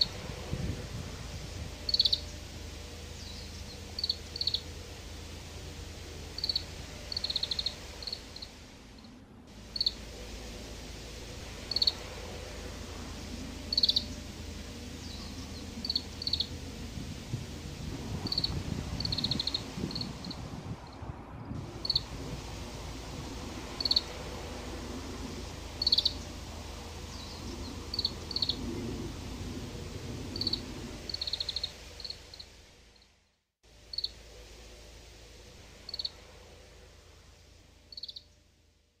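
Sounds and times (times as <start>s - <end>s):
finch twittering and trills: 1.6s - 8.6s, 9.6s - 10.1s, 10.7s - 20.4s, 25.4s - 28.6s.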